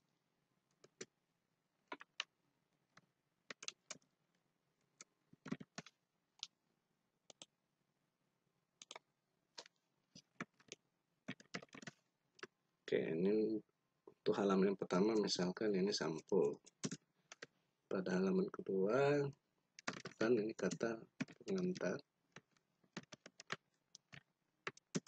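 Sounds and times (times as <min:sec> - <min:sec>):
computer mouse clicks: 0:01.9 - 0:02.3, 0:03.5 - 0:04.0, 0:05.0 - 0:06.5, 0:07.3 - 0:07.5, 0:08.8 - 0:09.0, 0:16.2 - 0:17.5, 0:19.8 - 0:25.0
keyboard keys clicking: 0:03.5 - 0:04.0, 0:05.4 - 0:06.5, 0:09.6 - 0:12.0, 0:16.1 - 0:17.5, 0:19.8 - 0:25.0.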